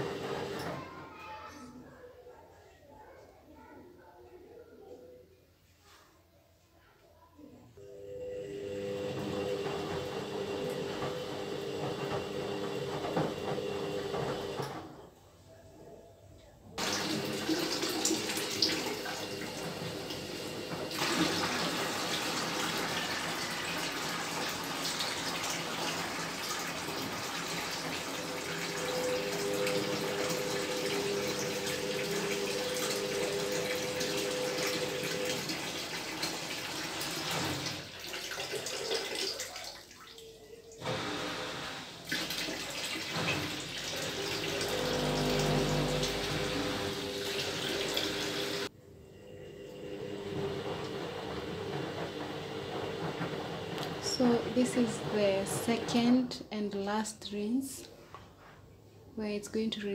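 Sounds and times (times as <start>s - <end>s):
drain pump humming: 0.0s - 0.8s, 7.9s - 14.8s, 16.8s - 56.2s.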